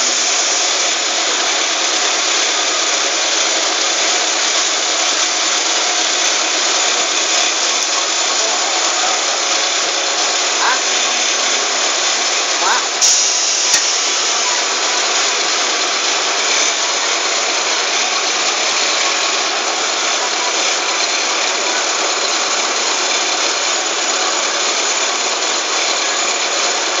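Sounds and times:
tyre machine running steadily: 0.0 - 27.0.

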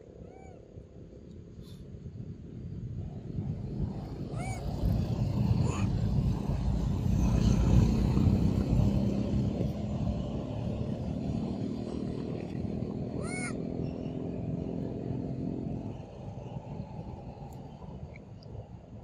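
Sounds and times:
vehicle engine droning: 3.2 - 18.9.

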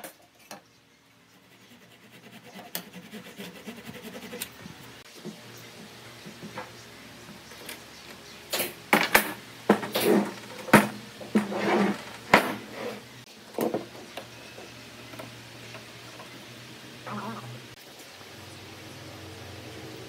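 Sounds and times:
wood scraping on workbench: 9.0 - 14.0.

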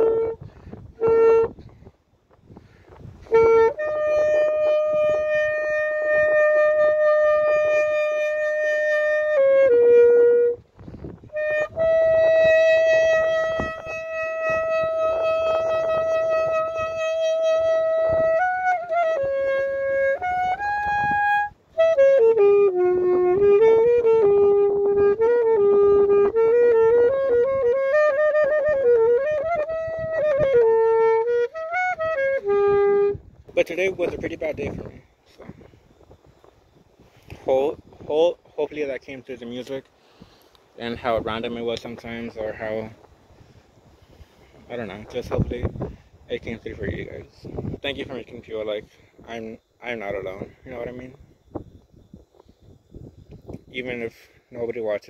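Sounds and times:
solo saxophone: 0.0 - 37.9.

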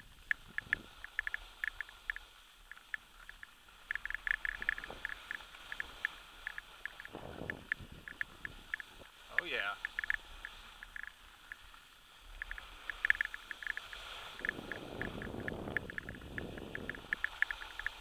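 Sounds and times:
sharp clicks and rattles: 0.0 - 11.7, 12.3 - 18.0
skis sliding on snow: 0.0 - 18.0
ski scrape: 4.6 - 7.6, 8.4 - 18.0.

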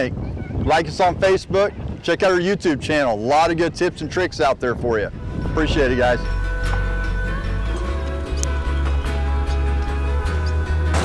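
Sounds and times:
music with heavy bass: 6.1 - 11.0.

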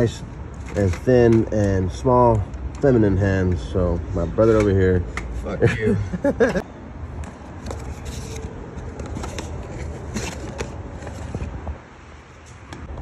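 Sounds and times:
cardboard box scrapes and clicks: 7.6 - 11.7.

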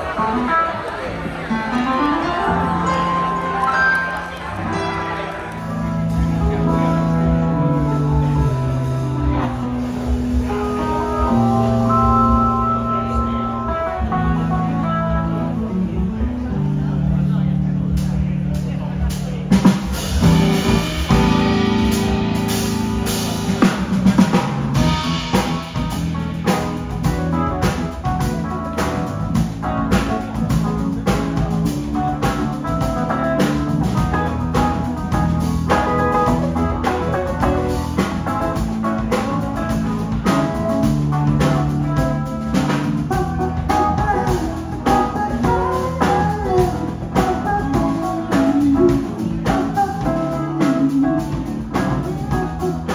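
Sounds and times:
keyboard: 0.0 - 52.9
drum kit beat: 18.6 - 52.9
electric guitar: 19.6 - 52.9.

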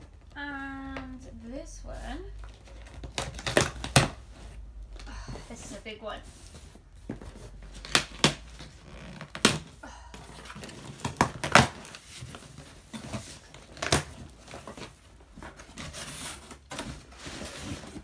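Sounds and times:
cardboard flaps rustling: 2.4 - 18.0
cardboard and tape ripping: 2.5 - 4.6, 7.3 - 9.8, 10.4 - 18.0.

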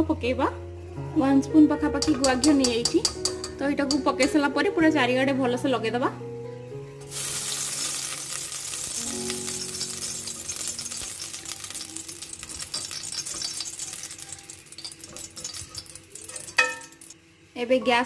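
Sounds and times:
ghee sizzling in a metal pot: 1.5 - 4.6, 7.0 - 17.8.

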